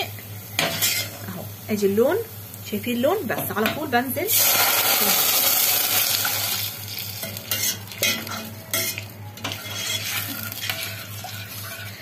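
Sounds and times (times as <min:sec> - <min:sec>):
faint sizzle: 0:00.0 - 0:12.0
water hissing in hot oil: 0:04.2 - 0:07.2.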